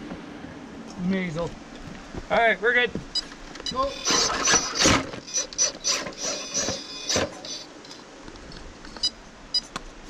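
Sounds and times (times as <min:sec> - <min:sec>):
rc car motor whining: 0:03.8 - 0:07.7.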